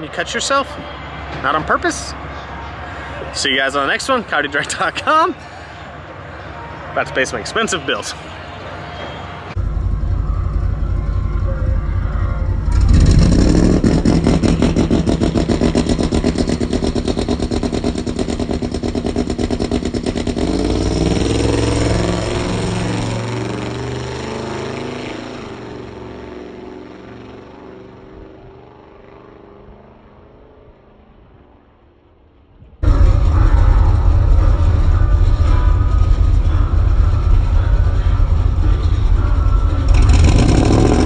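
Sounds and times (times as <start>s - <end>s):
truck driving off: 0.0s - 29.0s, 32.8s - 41.0s
truck engine revving: 9.5s - 27.5s, 32.8s - 41.0s.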